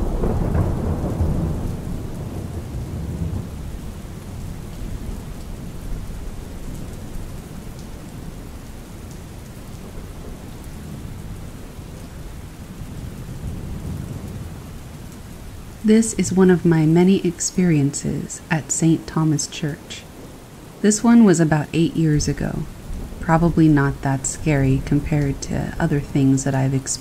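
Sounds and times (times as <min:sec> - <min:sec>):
rolling thunder: 0:00.0 - 0:07.2, 0:09.8 - 0:15.8, 0:22.6 - 0:25.8
steady rain: 0:00.0 - 0:27.0.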